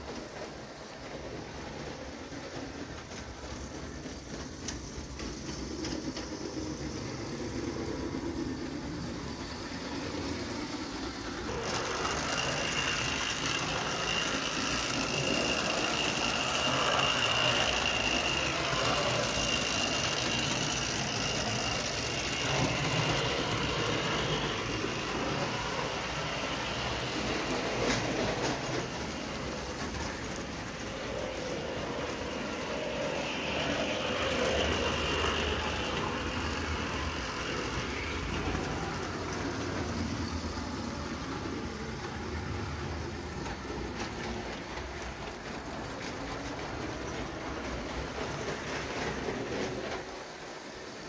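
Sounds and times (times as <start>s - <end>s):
toy train wheels rattling on rails: 0.0s - 51.0s
high-pitched motor whine: 11.5s - 28.6s, 30.8s - 38.9s.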